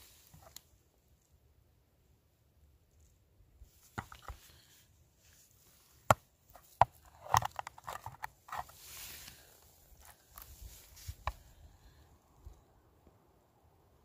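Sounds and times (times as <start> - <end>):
hard objects clicking and knocking: 4.0 - 4.4, 6.1 - 8.7.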